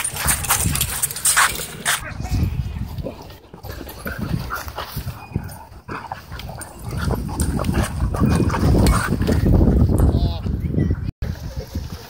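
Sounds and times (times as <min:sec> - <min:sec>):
dogs scuffling: 0:00.0 - 0:02.0
dogs growling whining and yipping: 0:03.2 - 0:09.3.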